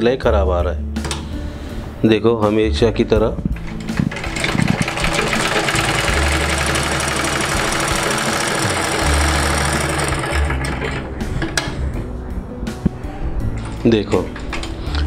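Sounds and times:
sewing machine clattering: 0:03.6 - 0:11.7.

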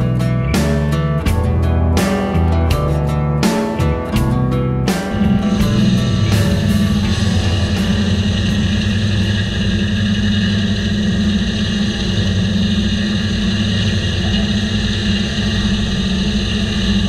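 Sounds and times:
diesel engine running under load: 0:00.0 - 0:17.0
circular saw cutting log: 0:04.9 - 0:17.0.

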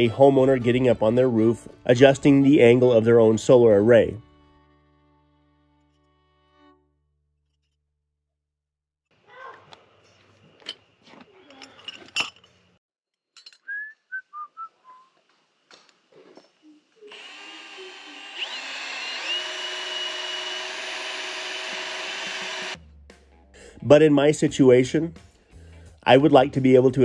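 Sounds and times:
metal parts and tools clinking: 0:10.6 - 0:13.7
cordless drill boring into metal: 0:17.1 - 0:22.8.

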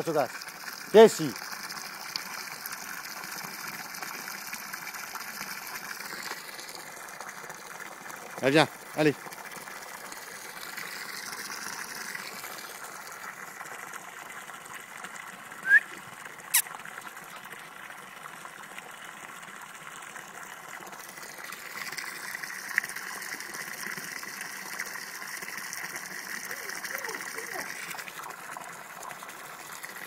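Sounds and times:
hose water splashing into pool: 0:00.0 - 0:30.0.

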